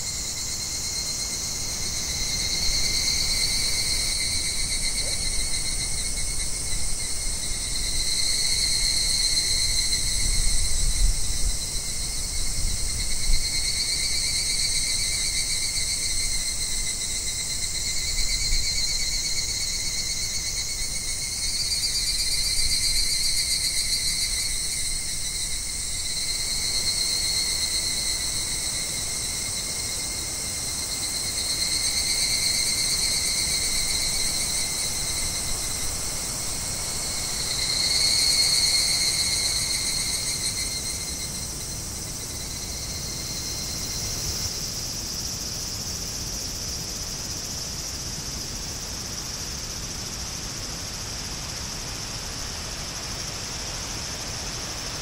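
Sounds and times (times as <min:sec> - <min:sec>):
insects trilling: 0:00.0 - 0:55.0.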